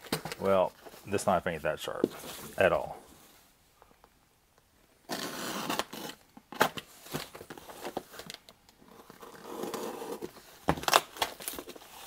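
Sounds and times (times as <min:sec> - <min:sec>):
knife slitting tape on cardboard: 0:05.1 - 0:06.2.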